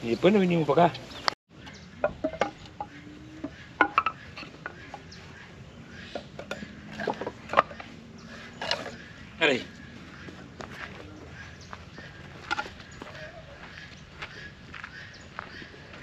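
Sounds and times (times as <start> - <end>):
firewood logs knocking together: 2.0 - 5.0, 6.1 - 7.9, 12.4 - 12.9.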